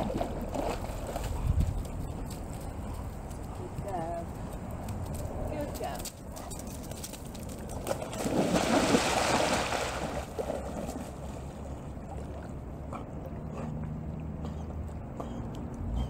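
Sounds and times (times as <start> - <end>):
water sloshing: 7.2 - 15.2
dog splashing into water: 7.7 - 12.4.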